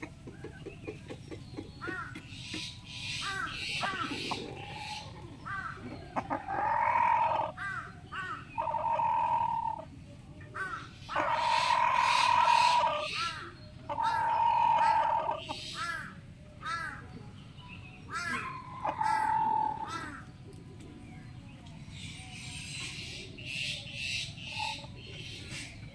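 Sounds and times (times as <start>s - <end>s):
bird calls: 0.0s - 9.9s, 10.5s - 17.2s, 18.0s - 25.9s
rooster crowing: 18.4s - 19.9s.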